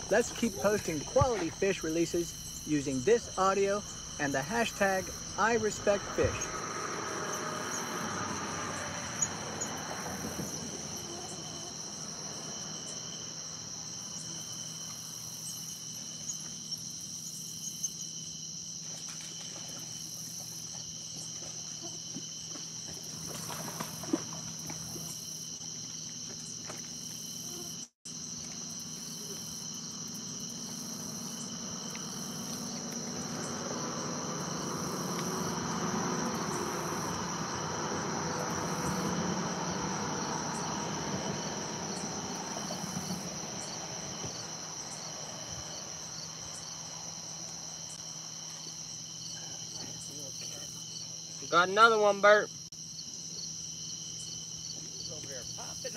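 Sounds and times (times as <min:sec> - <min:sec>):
night insects chirping: 0:00.0 - 0:55.9.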